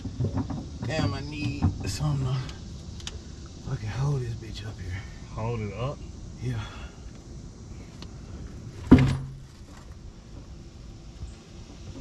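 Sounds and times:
loud knock: 0:08.8 - 0:09.4.

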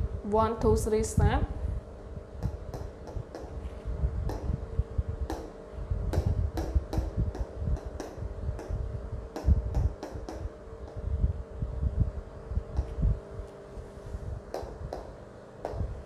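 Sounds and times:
low steady hum: 0:00.0 - 0:16.0
marker tapping on whiteboard: 0:02.4 - 0:03.6, 0:04.3 - 0:04.5, 0:05.3 - 0:05.5, 0:06.1 - 0:11.0, 0:14.5 - 0:15.9.

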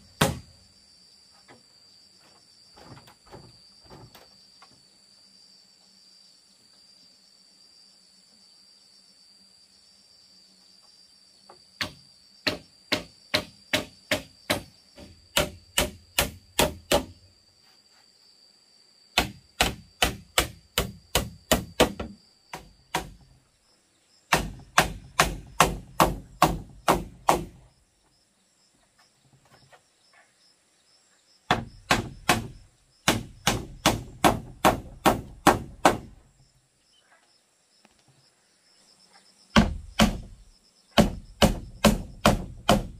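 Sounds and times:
hammer driving nails into wood: 0:11.8 - 0:17.2, 0:19.2 - 0:23.2, 0:24.3 - 0:27.6, 0:31.5 - 0:36.1, 0:39.6 - 0:40.3, 0:41.0 - 0:42.9.

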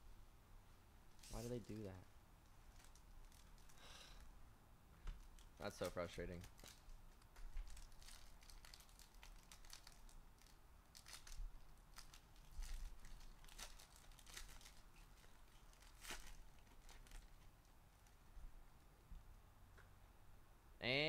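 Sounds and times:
foil pack tearing and crinkling: 0:05.3 - 0:17.5.

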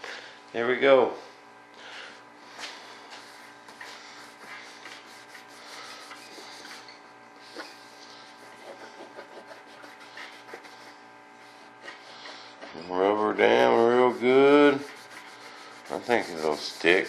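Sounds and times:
hands rubbing paper on board: 0:03.2 - 0:11.0, 0:13.6 - 0:17.0.

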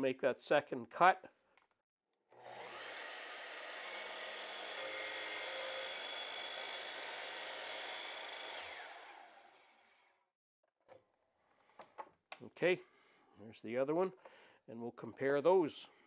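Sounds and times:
miter saw cutting a board: 0:02.4 - 0:10.0.

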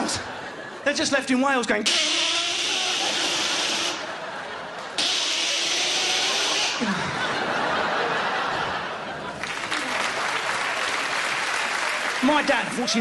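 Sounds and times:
audience laughing: 0:00.0 - 0:13.0
audience applauding: 0:08.0 - 0:13.0.

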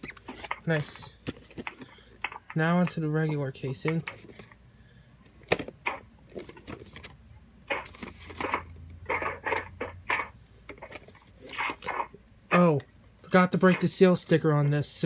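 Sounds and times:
rustling scrapes of tape case: 0:00.0 - 0:03.0, 0:03.7 - 0:04.6, 0:05.2 - 0:12.2.

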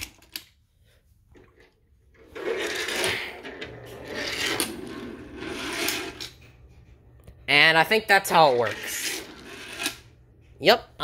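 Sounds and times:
toy train rolling on wooden track: 0:02.1 - 0:06.5, 0:08.2 - 0:10.1.

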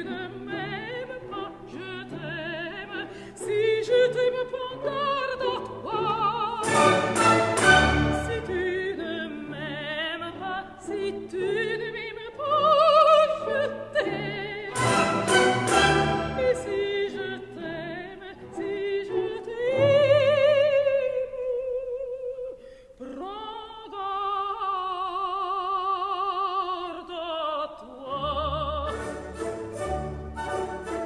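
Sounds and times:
operatic singing: 0:00.0 - 0:31.0
orchestra playing: 0:04.0 - 0:11.8, 0:13.1 - 0:17.9, 0:28.4 - 0:31.0.

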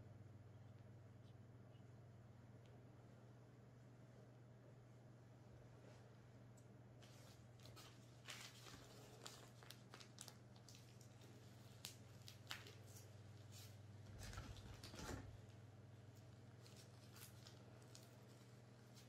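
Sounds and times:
steady low hum: 0:00.0 - 0:19.0
diaper wrapping rustling and crinkling: 0:07.0 - 0:15.2, 0:16.6 - 0:19.0.

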